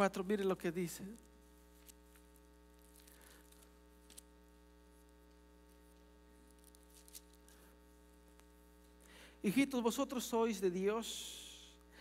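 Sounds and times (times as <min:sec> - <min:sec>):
electrical mains hum: 0:00.0 - 0:12.0.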